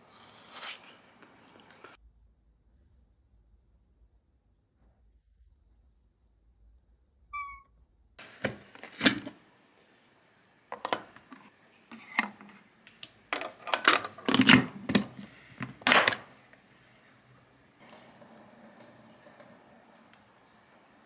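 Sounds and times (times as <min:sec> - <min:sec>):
plastic clicks and knocks: 0:10.7 - 0:11.4.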